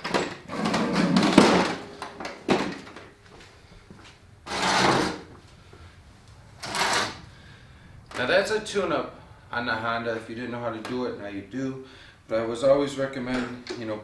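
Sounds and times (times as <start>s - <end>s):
lawn mower scraping on concrete: 0.5s - 1.4s, 4.5s - 5.3s, 6.6s - 7.2s.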